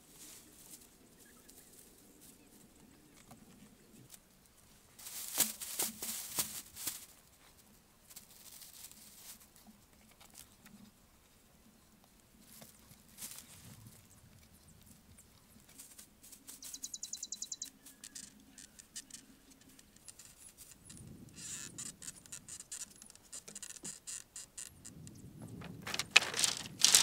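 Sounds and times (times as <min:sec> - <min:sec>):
dry grass thatch rustling: 0:00.0 - 0:02.6, 0:04.1 - 0:10.6, 0:12.4 - 0:14.4, 0:15.3 - 0:17.1, 0:25.6 - 0:27.0.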